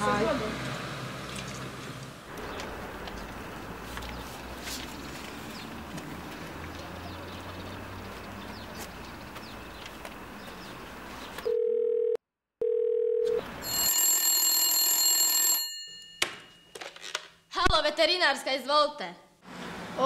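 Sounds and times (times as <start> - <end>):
phone ringback tone: 11.5 - 16.5
desk telephone ringing: 11.5 - 16.8.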